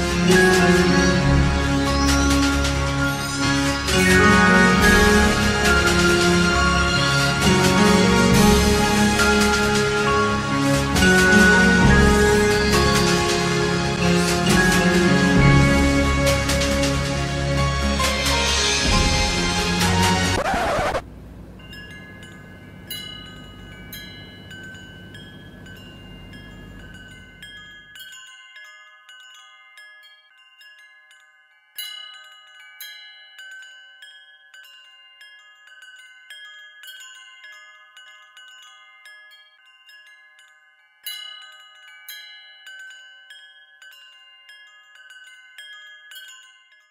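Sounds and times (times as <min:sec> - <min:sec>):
bell-like chiming notes: 0:00.0 - 0:46.9.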